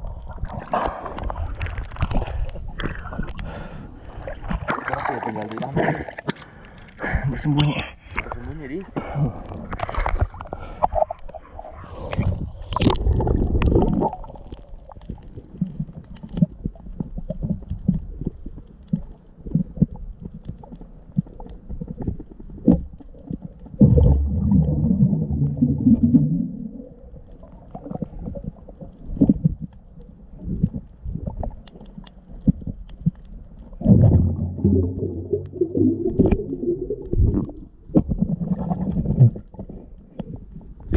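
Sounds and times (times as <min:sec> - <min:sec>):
underwater rumbling and gurgling: 0:00.0 - 0:40.9
underwater knocks: 0:33.8 - 0:38.3.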